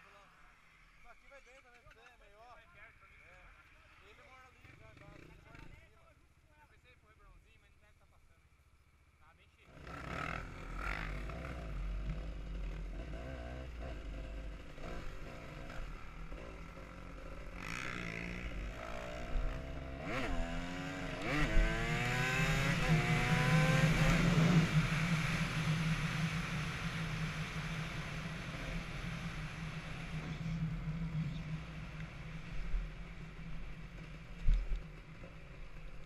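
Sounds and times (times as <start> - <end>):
dirt bike engine accelerating: 9.7 - 36.0.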